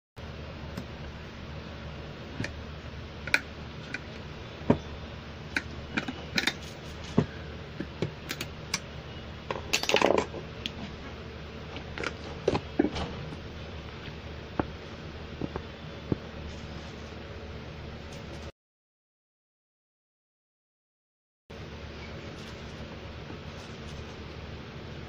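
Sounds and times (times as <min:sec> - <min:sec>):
metal parts clattering: 0:09.6 - 0:10.4.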